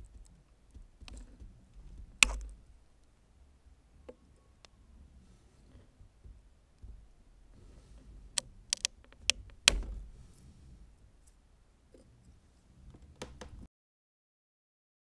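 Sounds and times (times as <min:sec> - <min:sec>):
plastic cracking and snapping: 0:08.7 - 0:09.8.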